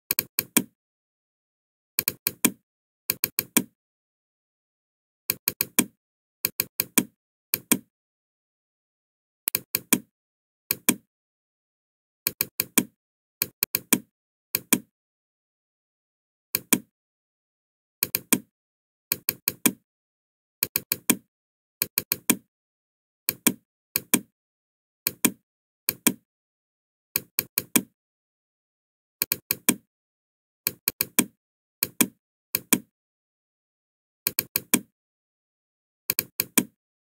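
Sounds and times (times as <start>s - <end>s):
computer mouse clicking: 0.1s - 0.7s, 2.0s - 3.7s, 5.3s - 7.9s, 9.5s - 10.1s, 10.7s - 11.0s, 12.3s - 14.9s, 16.6s - 16.9s, 18.0s - 18.5s, 19.1s - 19.8s, 20.6s - 21.2s, 21.8s - 22.4s, 23.3s - 24.3s, 25.1s - 26.2s, 27.2s - 27.9s, 29.2s - 29.8s, 30.7s - 32.9s, 34.3s - 34.9s, 36.1s - 36.8s.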